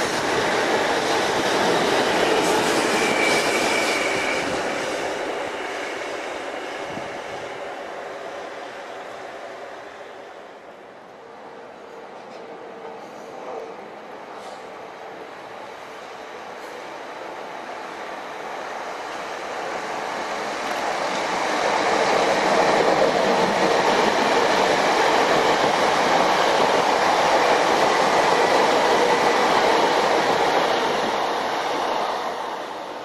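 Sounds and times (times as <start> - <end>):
train passing: 0.0 - 33.0.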